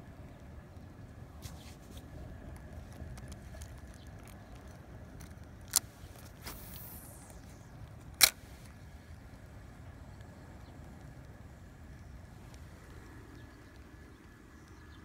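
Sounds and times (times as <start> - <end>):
low wind rumble: 0.0 - 15.0
fishing line hissing off spool: 5.9 - 9.0.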